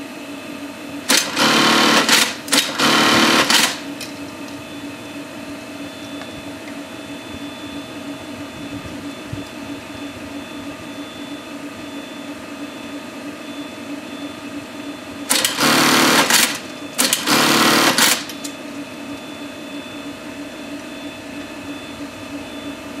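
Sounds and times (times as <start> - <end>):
steady electric hum: 0.0 - 23.0
sewing machine stitching: 1.1 - 3.9, 15.3 - 18.4.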